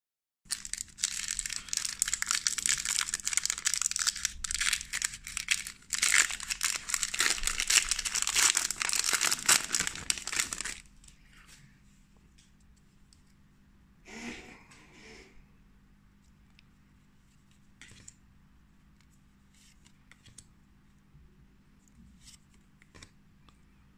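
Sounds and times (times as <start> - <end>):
foil wrapper tearing and crinkling: 0.5 - 10.9.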